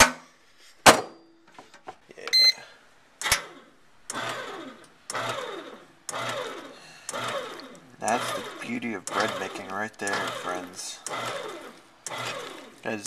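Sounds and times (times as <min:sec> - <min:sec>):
short electronic beep: 0:02.3 - 0:02.6
kneading motor pulsing: 0:03.2 - 0:13.0
bread machine click: 0:08.0 - 0:11.4.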